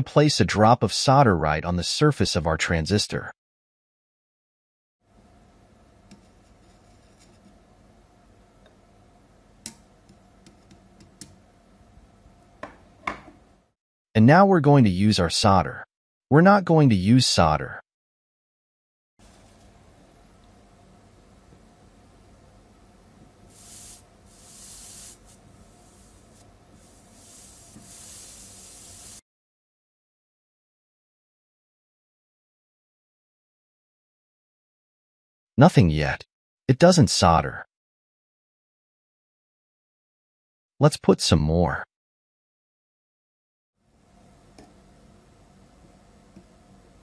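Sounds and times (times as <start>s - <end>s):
paste sizzling on soldering iron: 23.5s - 29.2s.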